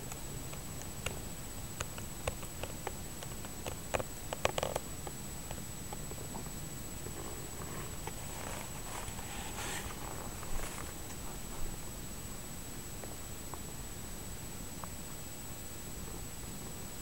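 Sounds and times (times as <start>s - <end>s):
cats rustling: 7.1s - 11.9s.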